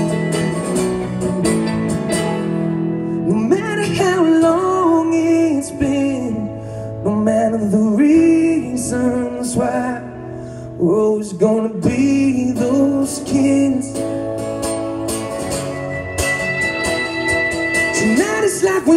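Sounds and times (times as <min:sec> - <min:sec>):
electric guitar: 0:00.0 - 0:18.9
strummed acoustic guitar: 0:00.0 - 0:18.9
man singing: 0:03.2 - 0:14.5, 0:17.8 - 0:18.9.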